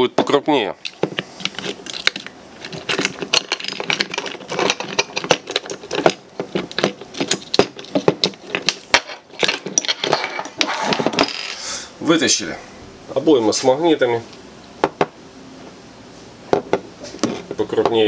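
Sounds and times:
plastic parts clicking and rattling: 0:00.2 - 0:11.6.

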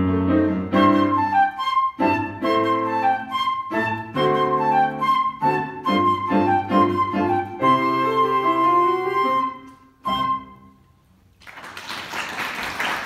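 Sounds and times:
grand piano chords: 0:00.0 - 0:11.0
flute: 0:00.7 - 0:11.0
audience applause: 0:11.4 - 0:13.0.

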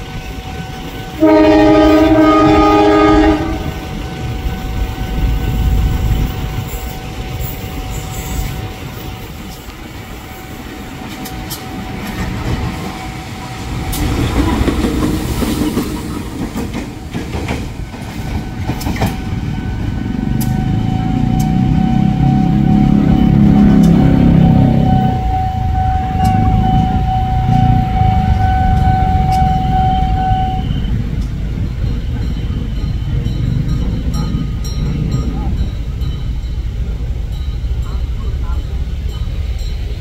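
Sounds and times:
locomotive horn chord: 0:00.0 - 0:09.4, 0:19.8 - 0:30.9
train wheels clicking over rail joints: 0:00.0 - 0:30.0, 0:30.6 - 0:40.0
locomotive engine rumbling: 0:00.0 - 0:40.0.

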